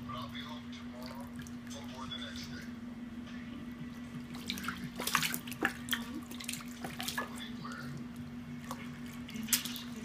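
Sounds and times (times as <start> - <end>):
steady low hum: 0.0 - 10.0
baby splashing in water: 4.3 - 7.5, 8.6 - 10.0.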